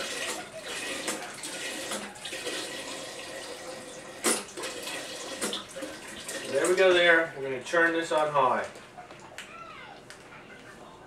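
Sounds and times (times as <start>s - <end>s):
water pouring into pot: 0.0s - 6.8s.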